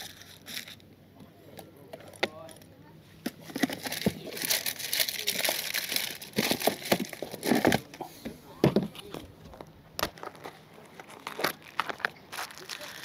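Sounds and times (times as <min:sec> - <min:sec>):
plastic packaging crinkling: 0:03.5 - 0:07.9, 0:10.0 - 0:13.0.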